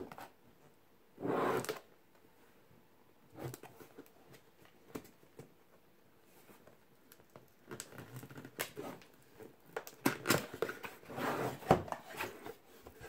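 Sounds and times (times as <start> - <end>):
cardboard lid scraping box: 10.9 - 12.6.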